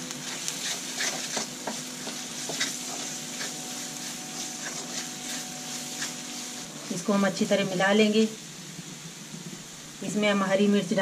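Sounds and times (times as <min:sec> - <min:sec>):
masala sizzling in oil: 0:00.0 - 0:11.0
spatula scraping a pan: 0:00.1 - 0:07.1.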